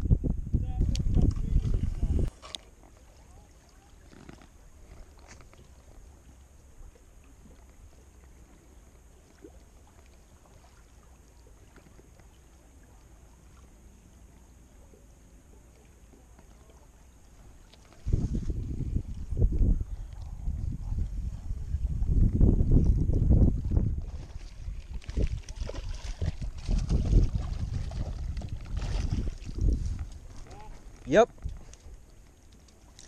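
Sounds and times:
wind rumble on microphone: 0.0s - 2.4s, 17.9s - 32.2s
faint lakeside ambience: 0.0s - 33.0s.

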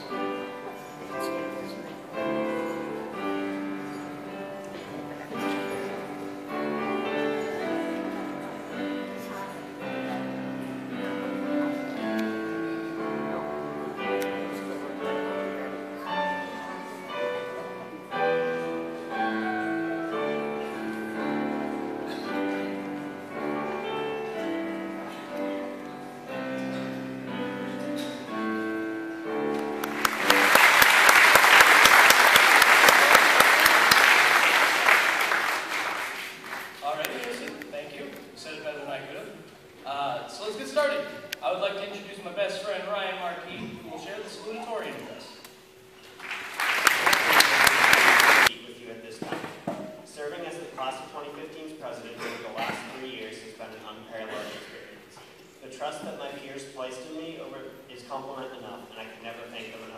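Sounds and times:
music with held notes: 0.0s - 30.9s
crowd applauding: 29.6s - 37.4s, 46.2s - 48.5s.

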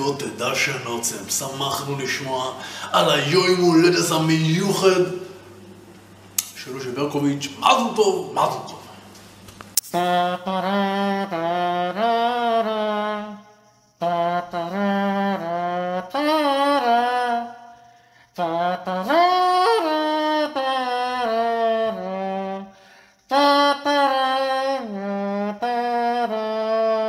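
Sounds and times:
man humming: 18.4s - 22.7s, 23.3s - 27.0s.

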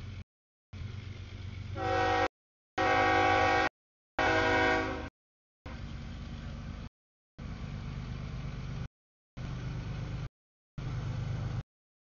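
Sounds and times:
passing train rumble: 0.0s - 0.2s, 0.8s - 5.1s, 5.7s - 11.6s
train horn: 1.8s - 5.1s.

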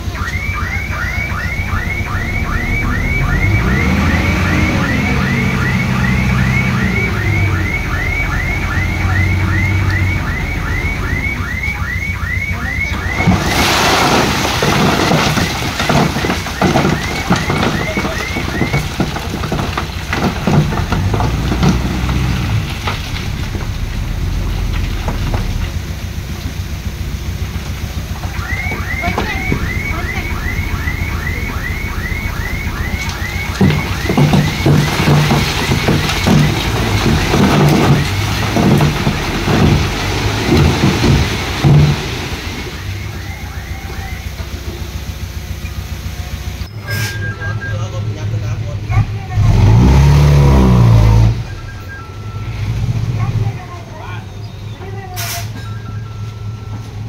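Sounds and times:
diesel machinery revving: 0.0s - 57.0s
stone clattering and tumbling: 13.1s - 26.6s, 32.7s - 42.6s.

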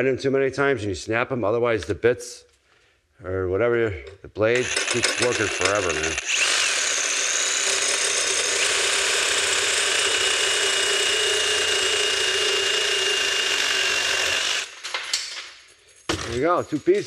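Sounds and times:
reciprocating saw cutting steel: 4.6s - 14.8s.

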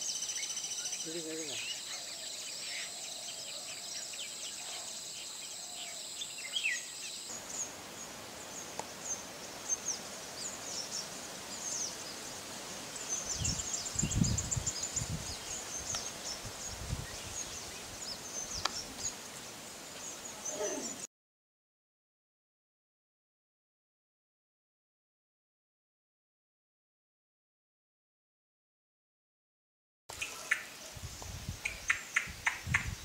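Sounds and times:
birds chirping: 0.0s - 21.1s.

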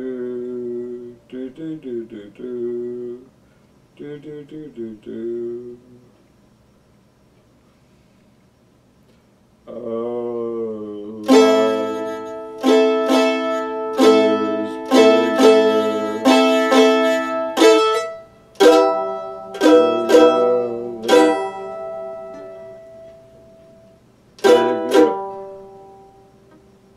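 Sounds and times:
mandolin plucked notes: 11.2s - 23.8s, 24.4s - 26.4s.

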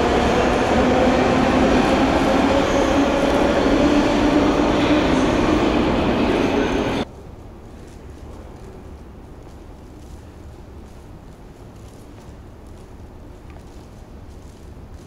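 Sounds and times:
metro train rumbling: 0.0s - 9.4s.

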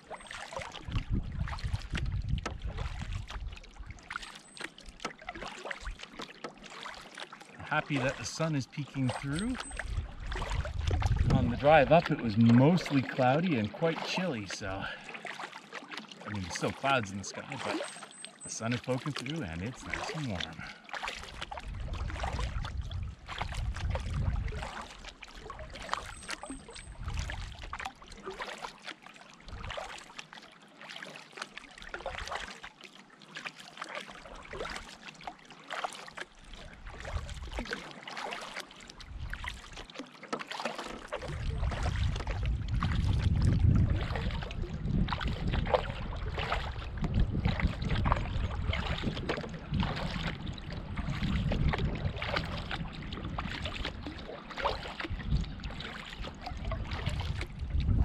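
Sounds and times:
paddle splashing water: 0.0s - 58.0s
wind on microphone: 0.8s - 3.6s, 9.2s - 12.6s, 21.6s - 24.7s, 41.2s - 54.0s, 55.0s - 58.0s.

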